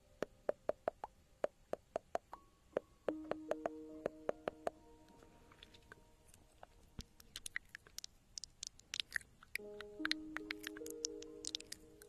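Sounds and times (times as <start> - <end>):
soft held music notes: 0.0 - 12.0
sharp crackling clicks: 3.2 - 12.0.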